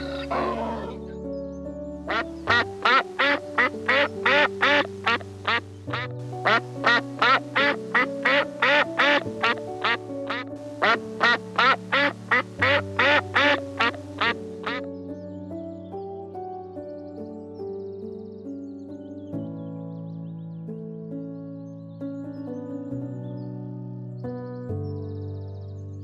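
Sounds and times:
animal calling: 0.0s - 1.1s, 2.1s - 14.8s
background music with held chords: 0.0s - 26.0s.

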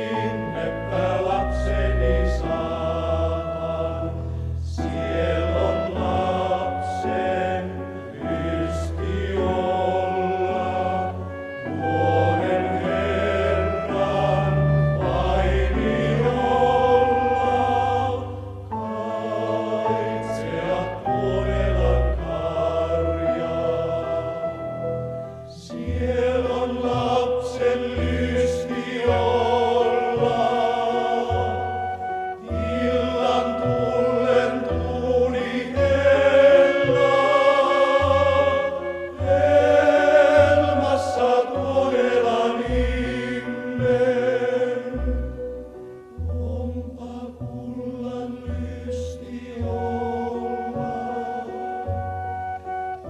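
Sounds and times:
men singing in chorus: 32.5s - 45.0s.

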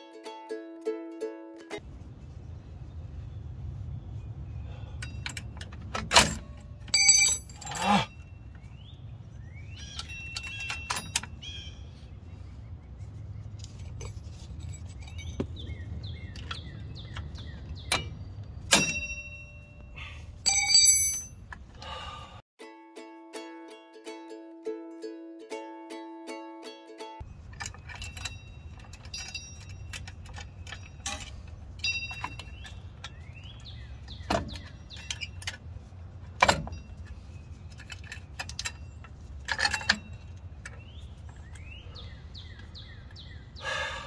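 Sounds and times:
steady low rumble: 1.8s - 7.6s
metallic clinks of brake hardware: 4.9s - 8.6s, 9.8s - 11.7s, 13.6s - 21.9s, 27.2s - 43.4s
short squeaks: 27.4s - 35.6s.

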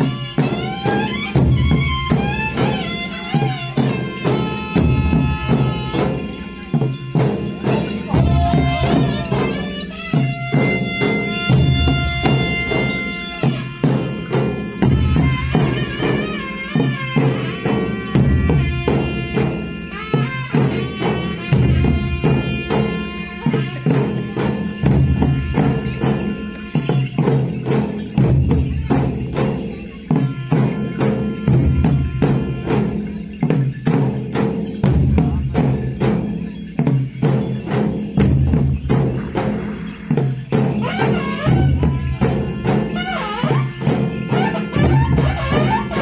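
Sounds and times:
pipe holding long high notes: 0.0s - 28.2s, 38.9s - 46.0s
barrel drums fast rhythm: 0.0s - 46.0s
jingling percussion: 0.0s - 46.0s.

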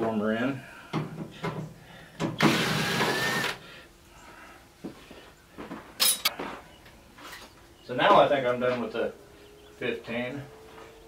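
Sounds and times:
cordless drill running: 2.4s - 3.6s.

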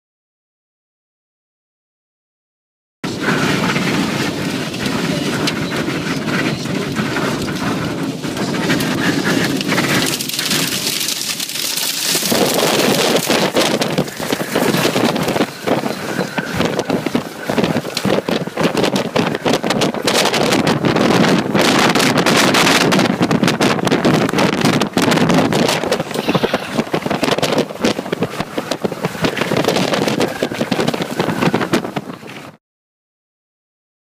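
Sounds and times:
heavy rain and wind on vehicle: 3.1s - 32.6s.

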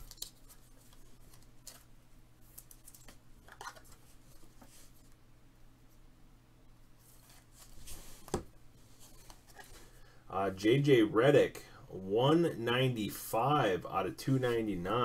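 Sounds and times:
trading cards clicking and rustling: 0.0s - 1.9s.

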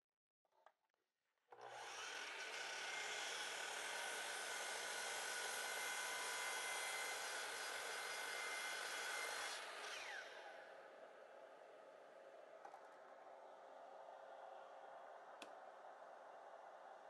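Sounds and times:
miter saw motor whine: 1.7s - 10.8s.

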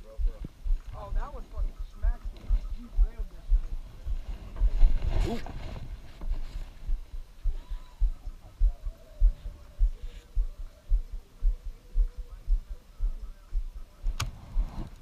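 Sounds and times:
faint hum: 6.8s - 15.0s.

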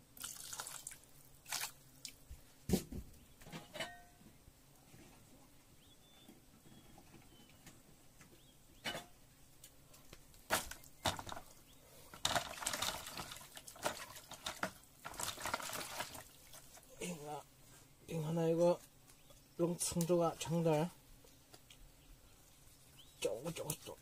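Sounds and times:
water sloshing in a basin: 0.2s - 2.2s, 12.1s - 17.0s.

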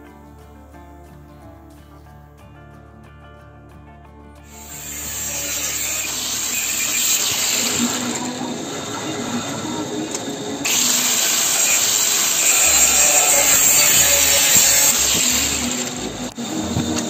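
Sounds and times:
angle grinder cutting steel: 4.5s - 17.0s
power tool noise: 4.5s - 17.0s.

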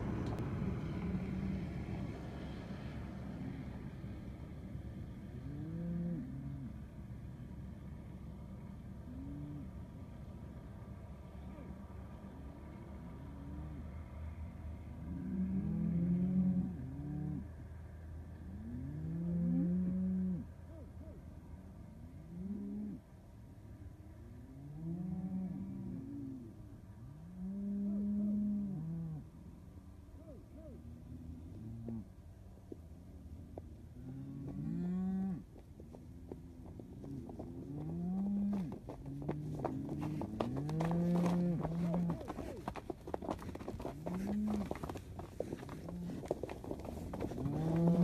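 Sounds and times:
cattle mooing: 37.8s - 42.6s, 44.0s - 45.0s, 45.6s - 48.0s.

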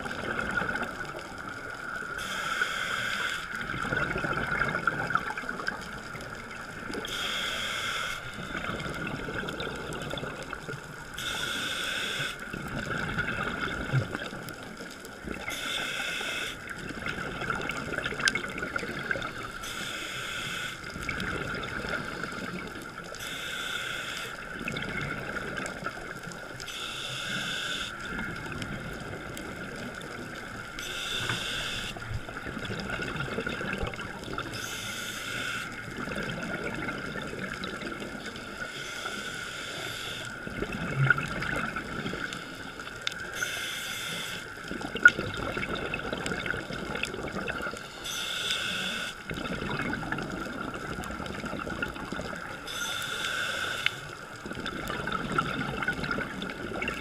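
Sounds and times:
exhaled bubbles bursting: 0.0s - 1.4s, 3.6s - 7.0s, 12.5s - 14.4s, 16.8s - 19.5s, 21.0s - 22.7s, 32.0s - 34.6s, 35.9s - 38.2s, 40.4s - 42.3s, 44.7s - 47.8s, 49.3s - 52.5s, 54.4s - 57.0s
underwater hiss: 0.5s - 10.6s, 11.2s - 12.8s, 13.4s - 17.2s, 18.6s - 57.0s.

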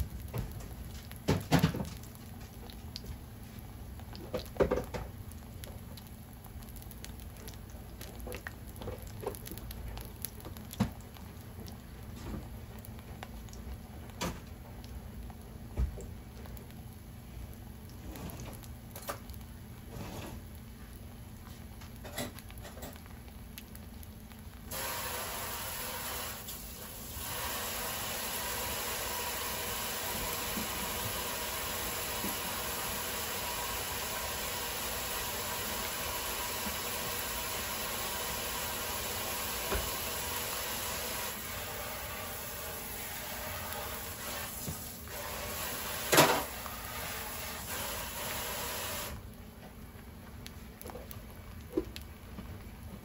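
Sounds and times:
food sizzling in hot oil: 17.7s - 49.2s.

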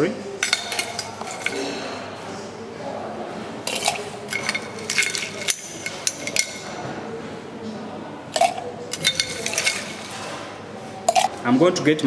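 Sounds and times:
ice and spoon clinking against glass: 0.4s - 2.0s, 3.7s - 6.8s, 8.4s - 10.3s, 11.1s - 11.4s.

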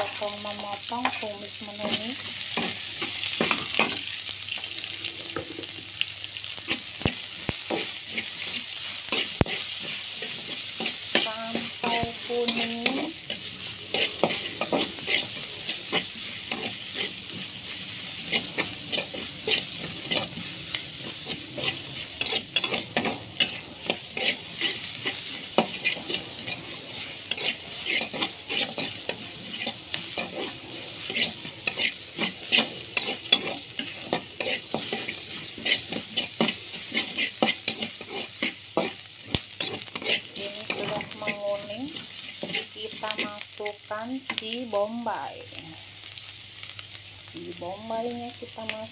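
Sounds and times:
food sizzling in oil: 0.0s - 48.9s
metal spatula scraping a wok: 7.7s - 44.4s.

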